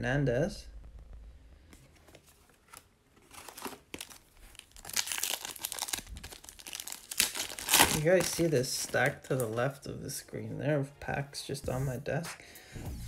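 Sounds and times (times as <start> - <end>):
foil wrapper crinkling and tearing: 2.7 - 9.5.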